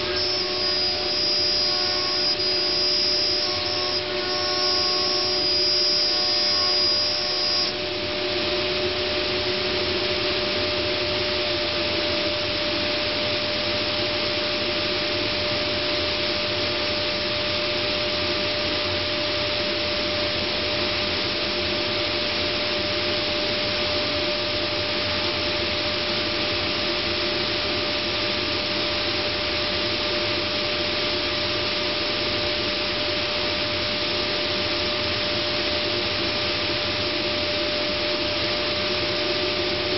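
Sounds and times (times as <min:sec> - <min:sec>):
high whine: 0:00.0 - 0:39.9
router rushing noise with hum: 0:00.0 - 0:39.9.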